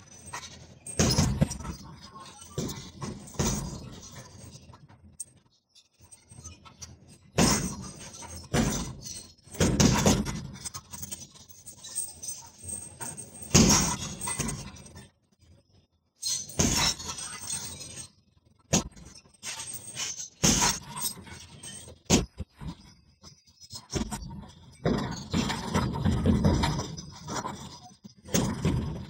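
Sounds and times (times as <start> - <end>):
punches thudding on heavy bag: 1.0 - 1.7, 7.4 - 7.9, 8.6 - 9.0, 9.6 - 10.5, 13.5 - 14.6, 16.6 - 17.0, 20.4 - 20.8.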